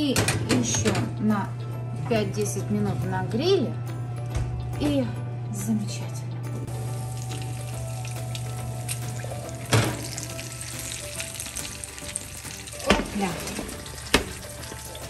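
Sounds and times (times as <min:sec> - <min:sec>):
food sizzling on baking tray: 0:06.7 - 0:15.0
metal tray clunking: 0:09.7 - 0:10.2.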